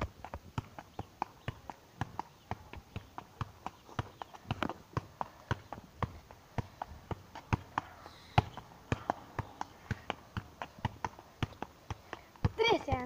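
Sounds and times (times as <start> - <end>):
football thudding on body: 0.0 - 13.0.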